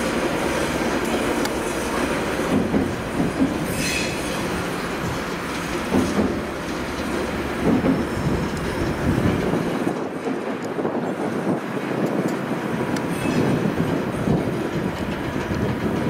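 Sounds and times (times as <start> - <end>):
diesel locomotive rumble: 0.0 - 16.0
wheel squeal: 3.6 - 4.5.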